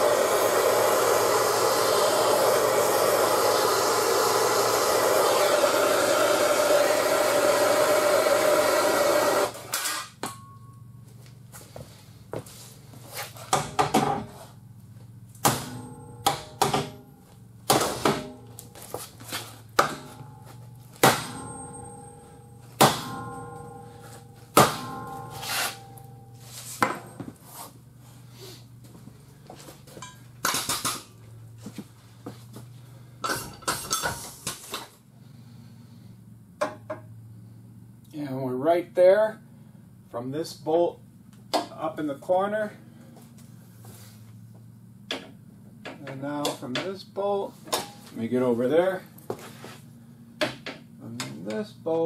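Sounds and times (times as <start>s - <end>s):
hand torch hissing: 0.0s - 9.5s
metallic knocks and clanks: 13.5s - 14.4s, 15.4s - 27.4s.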